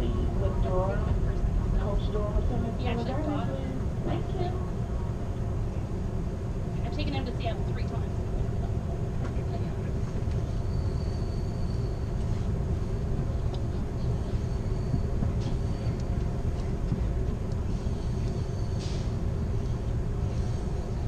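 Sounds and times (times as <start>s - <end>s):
train car rumbling on rails: 0.0s - 21.0s
faint high squeal: 10.5s - 12.2s, 14.4s - 16.0s, 18.0s - 19.2s.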